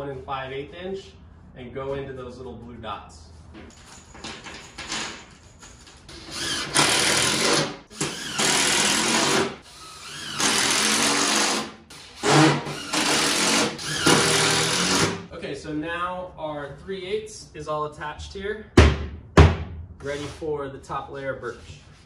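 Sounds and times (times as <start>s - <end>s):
cordless drill driving screws: 6.2s - 15.2s.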